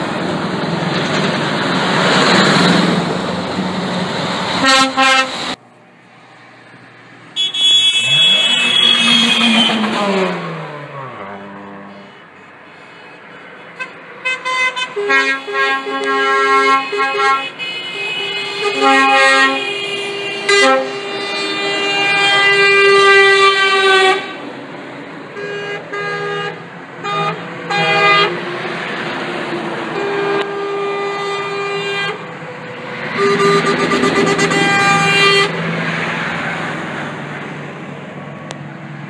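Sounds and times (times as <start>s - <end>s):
vehicle passing by: 0.0s - 4.6s, 8.0s - 12.6s, 27.4s - 30.4s, 32.1s - 39.0s
lorry air horn blasts: 4.6s - 5.4s, 7.4s - 10.2s, 13.8s - 24.4s, 33.1s - 35.6s.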